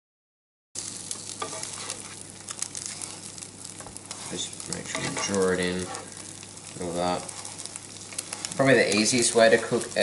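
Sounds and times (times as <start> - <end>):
eggs sizzling in frying pan: 0.8 - 10.0
plastic spatula scraping pan: 3.9 - 6.1.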